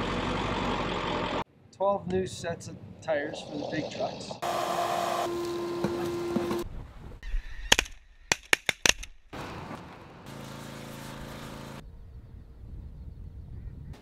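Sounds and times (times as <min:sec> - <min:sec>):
vacuum cleaner whining: 0:04.4 - 0:06.6
pressure washer spraying: 0:10.3 - 0:11.8.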